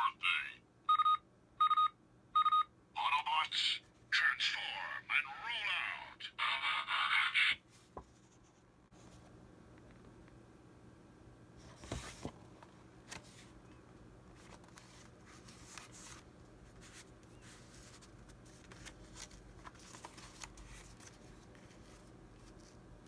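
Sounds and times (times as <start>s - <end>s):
paper rustling and scraping: 14.4s - 22.8s.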